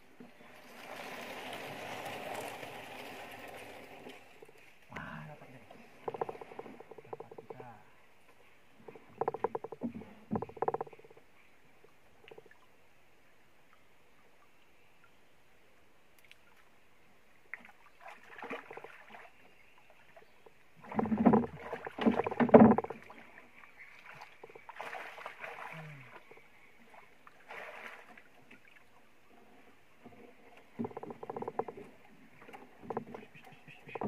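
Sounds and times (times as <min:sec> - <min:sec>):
water splashing against boat: 0:00.2 - 0:04.9, 0:05.5 - 0:07.7, 0:17.5 - 0:34.0.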